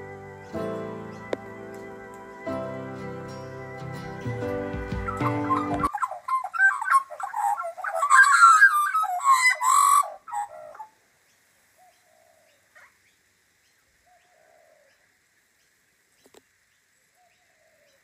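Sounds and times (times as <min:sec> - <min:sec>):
magpies carolling: 0:00.0 - 0:11.0.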